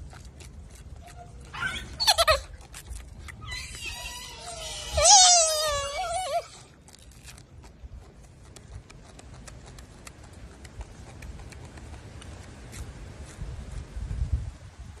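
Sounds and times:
faint irregular clicks: 8.5s - 12.9s.

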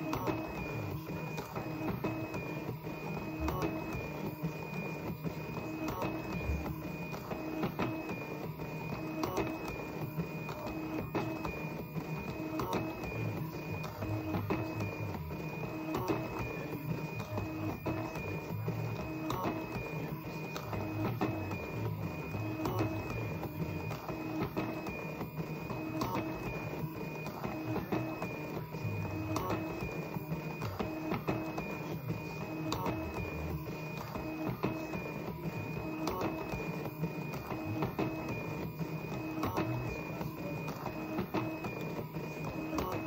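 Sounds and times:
stepper motor whine: 0.0s - 43.0s
stepper motor clicks: 3.1s - 4.4s, 12.2s - 43.0s.

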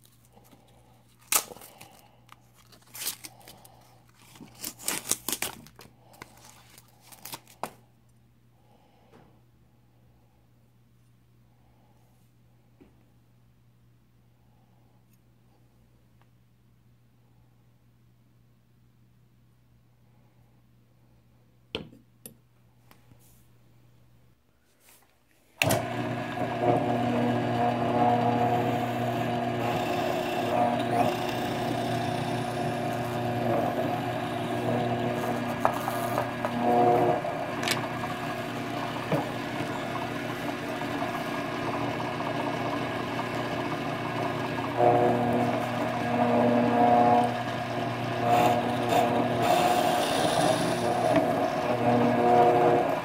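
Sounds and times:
paper wrapping crinkling and tearing: 0.0s - 7.8s
drill press boring into wood: 25.6s - 53.0s.

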